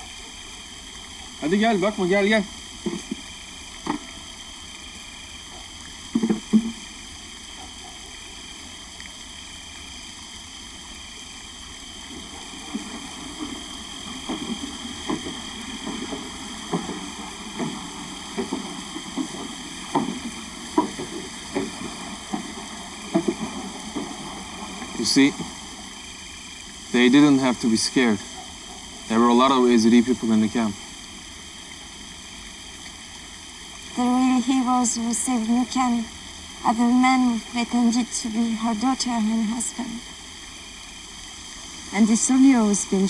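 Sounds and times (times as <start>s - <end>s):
footsteps on a staircase: 12.7s - 25.5s.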